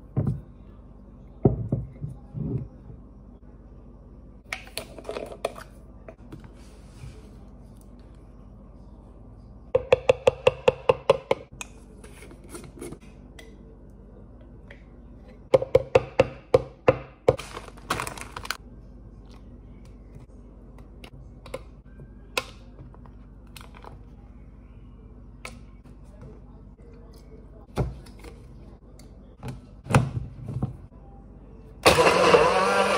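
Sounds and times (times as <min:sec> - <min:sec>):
plastic bag rustling: 0:17.4 - 0:18.6.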